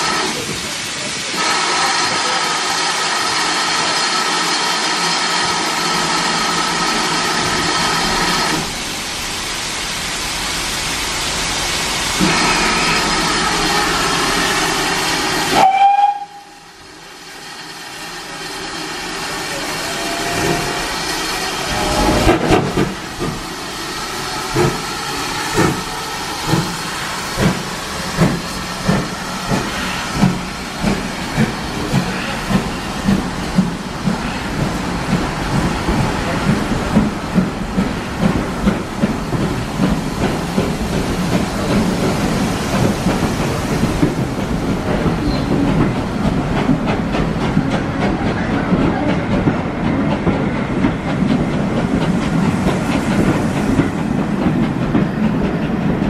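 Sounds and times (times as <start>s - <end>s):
steam locomotive hissing: 0.0s - 56.0s
steam whistle: 15.5s - 16.7s
locomotive exhaust beats: 22.0s - 56.0s.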